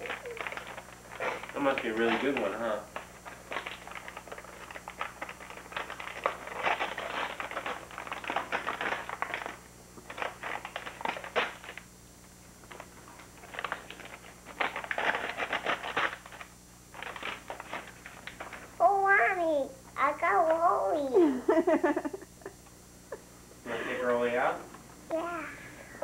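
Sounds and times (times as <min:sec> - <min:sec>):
wrapping paper tearing and crinkling: 0:00.0 - 0:11.9, 0:12.6 - 0:18.8.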